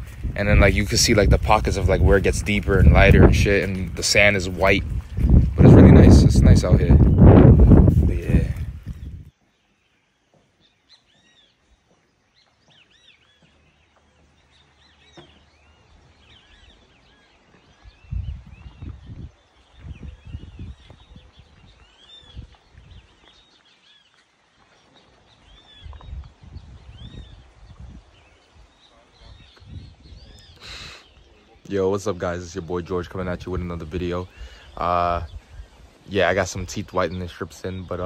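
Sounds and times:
wind rumble on microphone: 0:00.0 - 0:09.4, 0:15.8 - 0:23.5, 0:25.3 - 0:31.3, 0:33.0 - 0:38.0
chorus of high chirping calls: 0:28.8 - 0:38.0.

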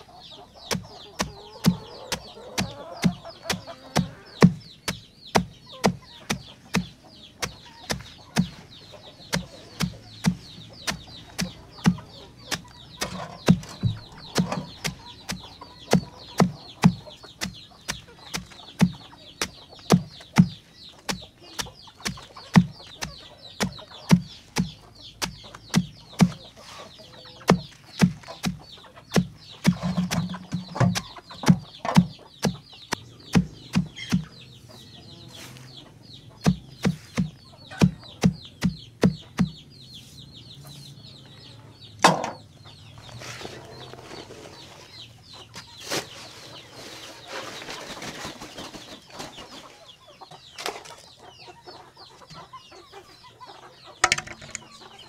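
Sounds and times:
hens clucking: 0:00.0 - 0:55.0
knife chopping banana stem: 0:00.7 - 0:08.6, 0:09.2 - 0:26.4, 0:27.5 - 0:34.4, 0:36.4 - 0:39.6.

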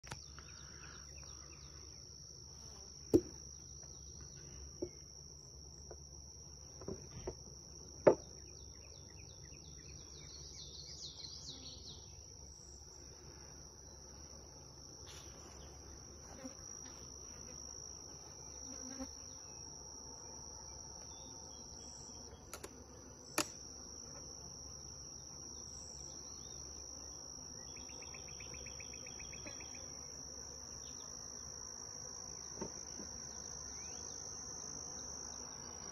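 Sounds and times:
insects trilling: 0:00.0 - 0:35.9
wooden hive boxes knocking: 0:03.1 - 0:03.4.

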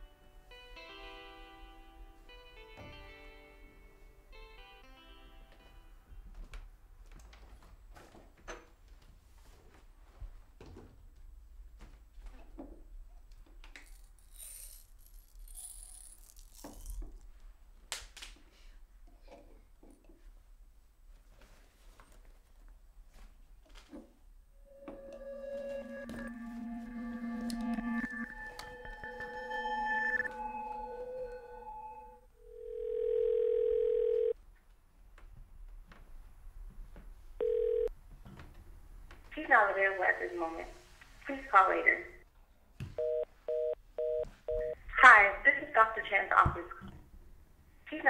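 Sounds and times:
pills rattling in jar: 0:13.8 - 0:17.1
sustained music notes: 0:24.6 - 0:32.3
telephone ringback tone: 0:32.4 - 0:34.4, 0:37.4 - 0:37.9, 0:43.0 - 0:44.8.

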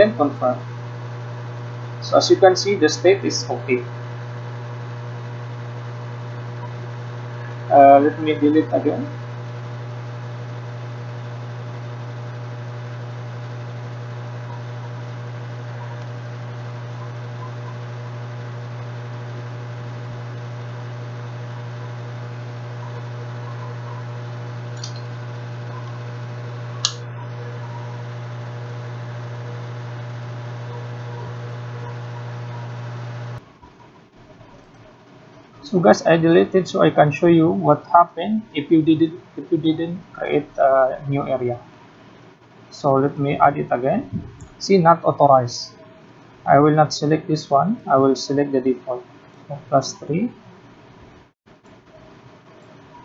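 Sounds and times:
low electrical hum: 0:00.0 - 0:53.0
short clicks: 0:24.7 - 0:25.1.

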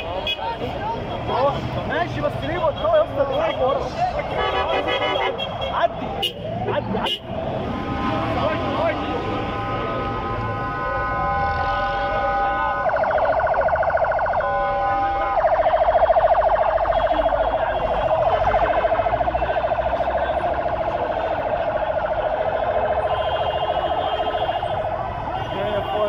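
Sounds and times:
emergency vehicle siren: 0:06.0 - 0:26.0.

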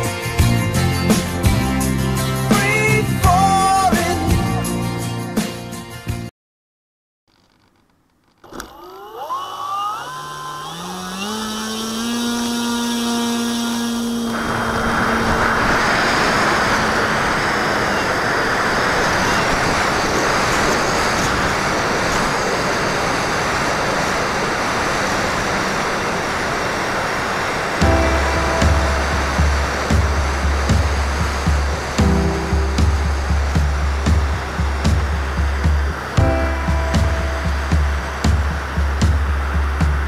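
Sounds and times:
model plane motor whine: 0:08.3 - 0:27.7
wind and propeller rush: 0:10.9 - 0:40.0.

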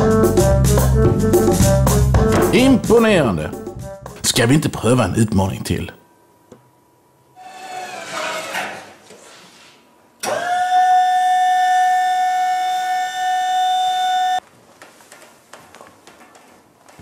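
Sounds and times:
loud siren-like tone: 0:10.2 - 0:14.4
faint clicks and rustles: 0:14.4 - 0:17.0.

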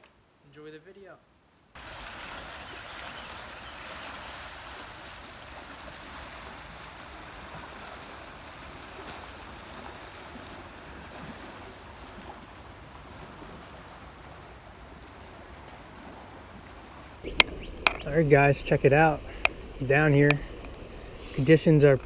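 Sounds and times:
small waves on rocky shore: 0:01.8 - 0:22.0
wind rumble on microphone: 0:05.0 - 0:22.0.

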